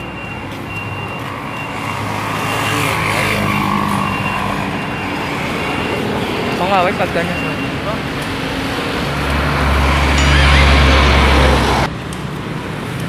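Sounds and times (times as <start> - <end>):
heavy vehicle engine hum: 0.0 - 13.0
road noise: 0.0 - 13.0.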